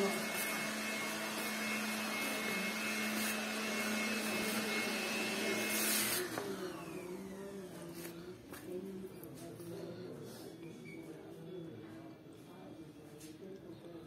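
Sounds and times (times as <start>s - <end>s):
electric motor whining: 0.0s - 7.8s.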